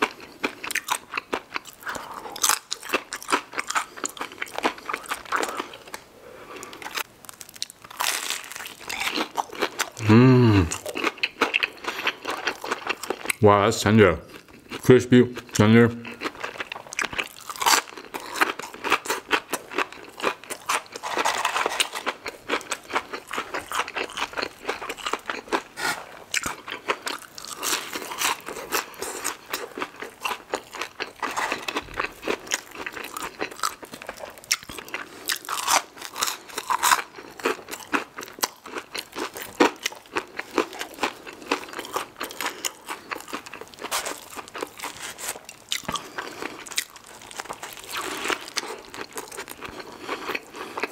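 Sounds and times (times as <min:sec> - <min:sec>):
crunching and chewing fried food: 0:00.0 - 0:13.4, 0:14.3 - 0:50.9.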